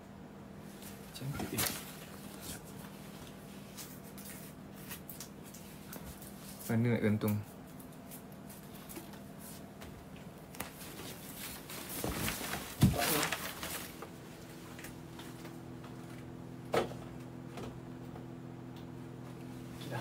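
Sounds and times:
objects rustling and knocking: 0:10.6 - 0:17.8.

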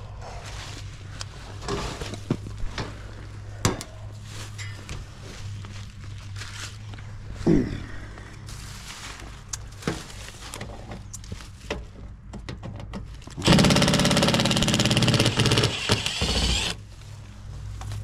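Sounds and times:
impact driver hammering: 0:13.4 - 0:16.8.

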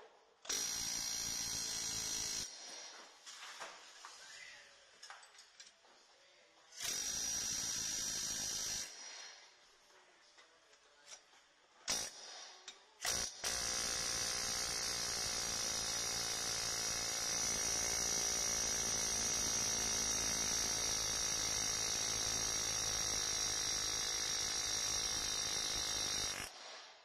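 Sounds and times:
air hammer buzzing: 0:00.5 - 0:03.0, 0:06.8 - 0:09.3, 0:11.9 - 0:26.6.

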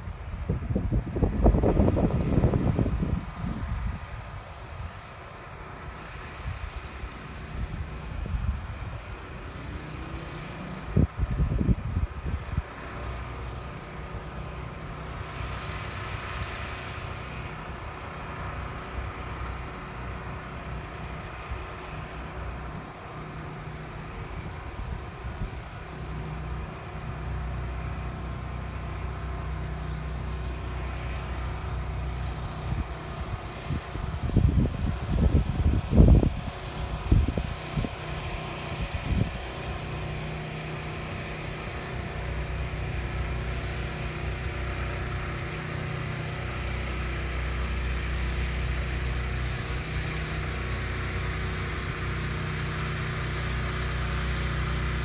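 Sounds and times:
wind on microphone: 0:00.0 - 0:05.0, 0:07.5 - 0:12.8, 0:32.6 - 0:38.0, 0:38.7 - 0:39.4
motor vehicle rumble: 0:00.0 - 0:55.0.

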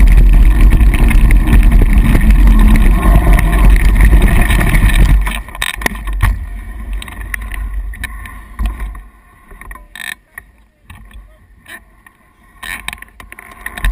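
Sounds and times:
wind buffeting microphone: 0:00.0 - 0:07.2
grass brushing microphone: 0:00.0 - 0:09.6
mountain bike tyres rushing: 0:00.0 - 0:09.6.

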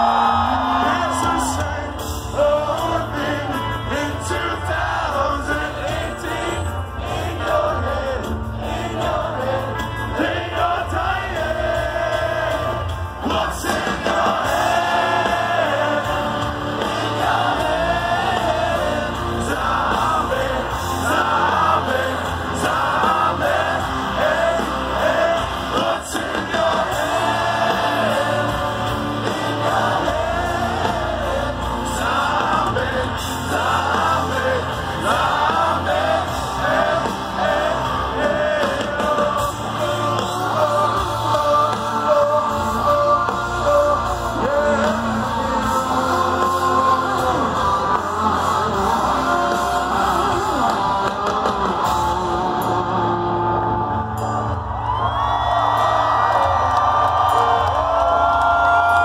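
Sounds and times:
live rock band with singing: 0:00.0 - 0:59.0.

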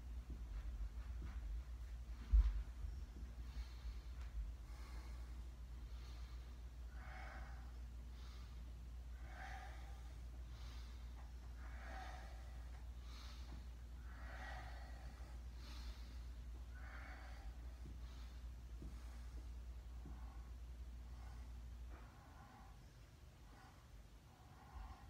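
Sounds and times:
man breathing deeply: 0:00.1 - 0:25.0.

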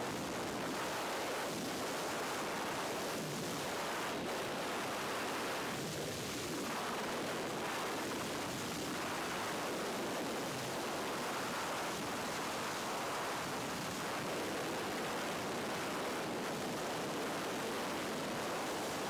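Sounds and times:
wind roaring across microphone: 0:00.0 - 0:19.0.

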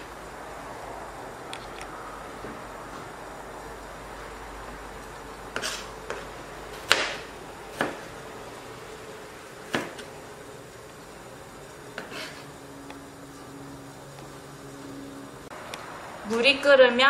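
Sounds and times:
knife chopping on cutting board: 0:05.6 - 0:06.2, 0:06.8 - 0:08.1, 0:09.7 - 0:10.1.

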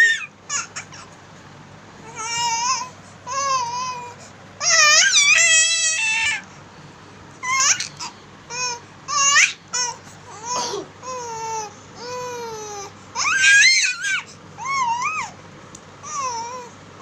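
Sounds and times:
baby crying: 0:00.0 - 0:01.1, 0:02.0 - 0:06.4, 0:07.4 - 0:15.4, 0:16.0 - 0:16.8.

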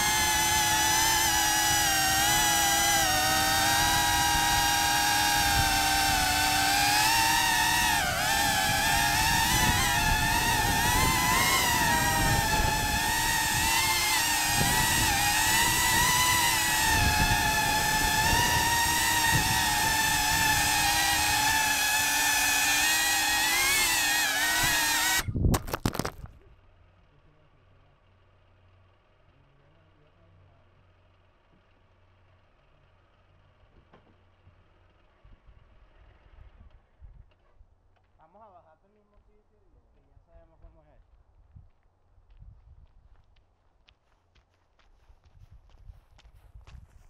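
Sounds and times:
drone motors whining: 0:00.0 - 0:26.1
rushing wind noise: 0:07.8 - 0:21.5.

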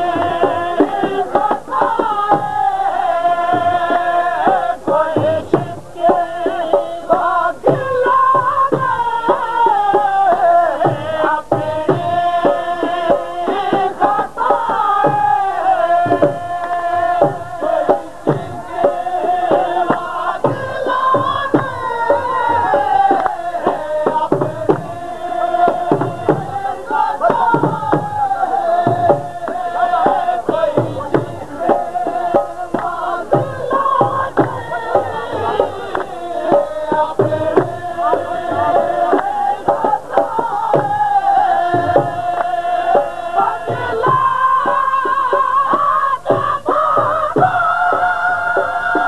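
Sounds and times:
dhol drum beating: 0:00.0 - 0:49.0
person singing folk song: 0:00.0 - 0:49.0.

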